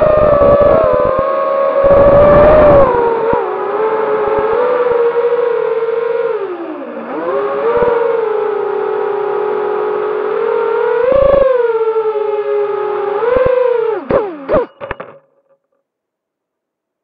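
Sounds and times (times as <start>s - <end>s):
quadcopter motors whining: 0.0s - 15.2s.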